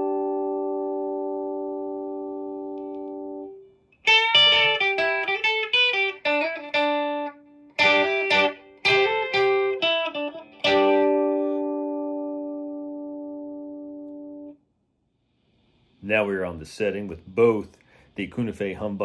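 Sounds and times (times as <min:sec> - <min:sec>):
electric guitar single notes: 0:00.0 - 0:14.6.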